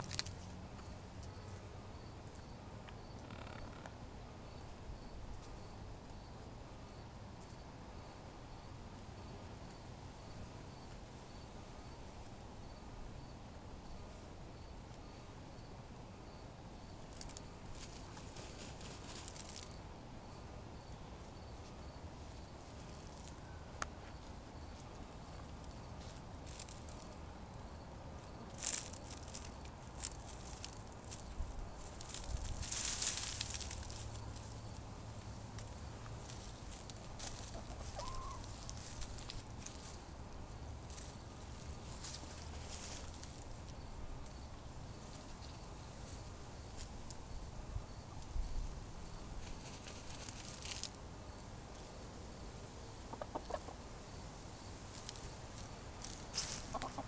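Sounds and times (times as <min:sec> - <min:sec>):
hens scratching in dry soil: 0:17.0 - 0:19.8, 0:21.2 - 0:47.3, 0:48.2 - 0:51.8, 0:53.0 - 0:57.0
hen calling: 0:37.5 - 0:38.6.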